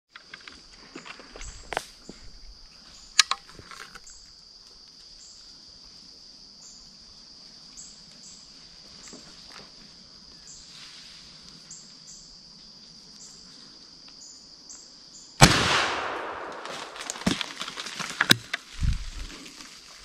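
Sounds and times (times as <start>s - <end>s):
insects buzzing: 0.1s - 20.0s
rustling in dry leaves: 7.5s - 12.0s, 16.2s - 20.0s
shotgun shot: 15.4s - 17.4s.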